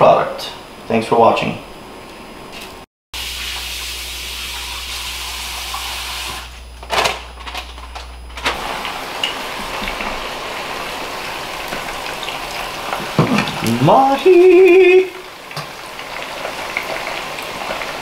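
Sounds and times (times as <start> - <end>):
food frying in hot oil: 3.2 - 7.1, 8.2 - 18.0.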